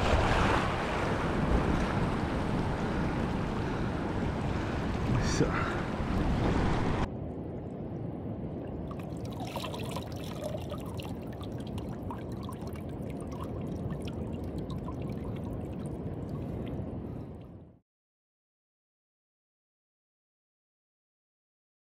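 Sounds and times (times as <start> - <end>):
water washing over reef: 0.0 - 7.1, 8.7 - 17.4
wind on microphone: 0.0 - 7.1
water trickling and dripping: 7.1 - 17.6.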